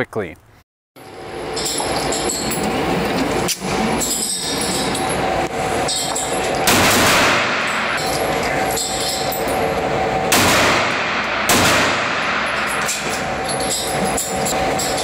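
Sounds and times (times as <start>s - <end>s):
echoing pistol shots: 6.7s - 7.7s, 10.3s - 12.7s.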